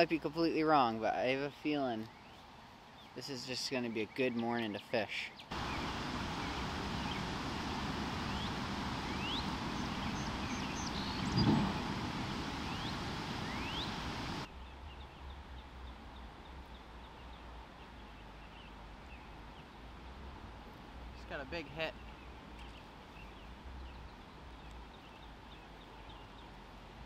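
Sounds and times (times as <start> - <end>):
birds chirping: 0.0 - 19.9, 21.2 - 26.7
steady rushing noise: 5.5 - 14.5
riverside ambience: 5.5 - 27.0
low thump: 11.3 - 12.3.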